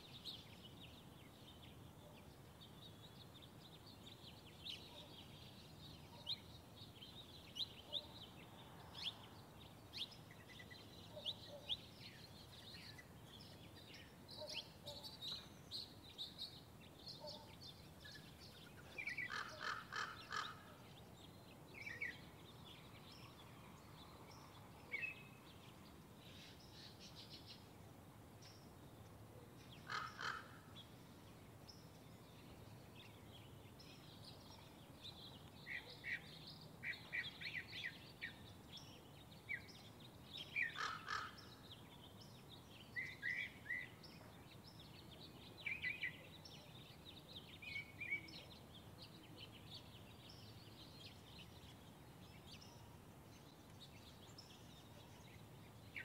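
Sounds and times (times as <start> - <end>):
birds chirping: 0.0 - 27.7, 28.4 - 56.0
faint background hiss: 0.0 - 56.0
harsh bird calls: 19.0 - 20.8, 29.8 - 30.7, 40.6 - 41.6.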